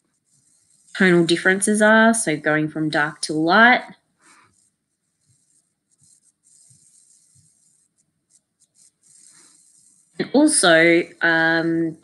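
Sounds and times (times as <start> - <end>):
pencil scratching on paper: 0.0 - 2.1, 4.2 - 11.0.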